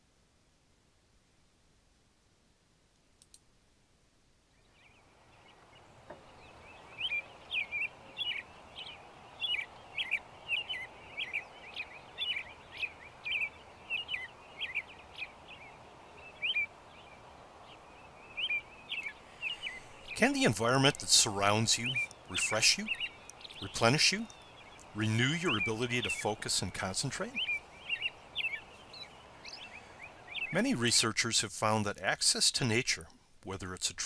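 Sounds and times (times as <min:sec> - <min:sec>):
outdoor background noise: 0:00.0 - 0:34.0
bird chirping calls: 0:04.5 - 0:34.0.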